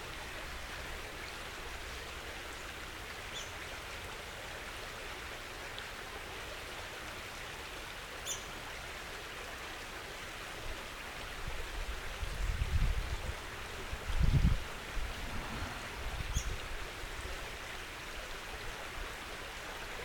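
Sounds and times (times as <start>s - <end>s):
flowing creek water: 0.0s - 20.0s
low rumbles on microphone: 12.3s - 16.8s.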